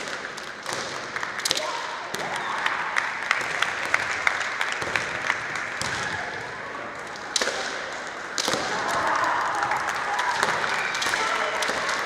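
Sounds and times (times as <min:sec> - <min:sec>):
bamboo swords clacking: 0:07.0 - 0:09.0.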